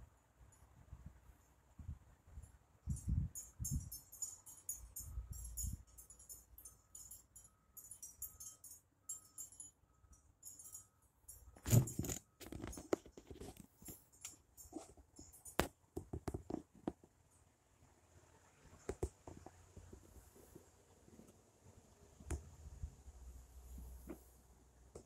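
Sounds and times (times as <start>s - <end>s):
faint high-pitched jingling: 2.4s - 15.9s.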